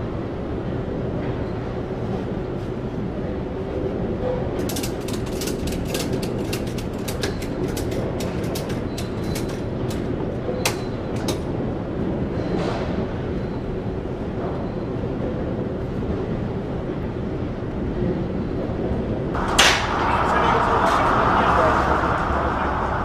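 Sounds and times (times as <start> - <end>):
ratchet strap clicking: 4.6 - 10.1.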